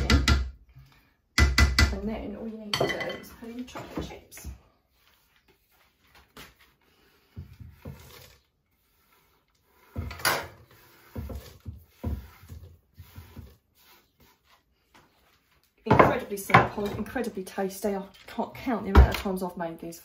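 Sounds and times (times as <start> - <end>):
spatula knocking and scraping bowl: 0.0 - 0.6, 7.3 - 8.4, 9.6 - 13.6, 15.8 - 17.3.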